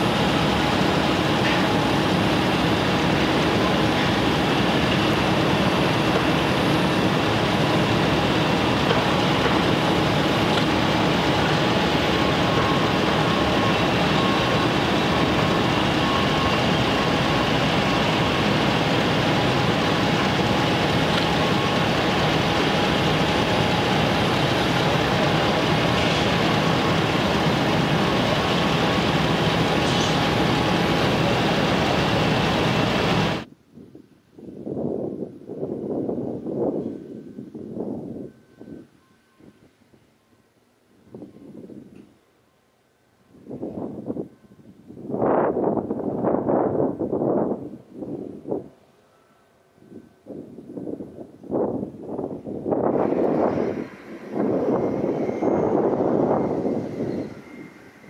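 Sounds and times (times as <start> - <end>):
construction machinery drone: 0.0 - 33.5, 50.3 - 58.0.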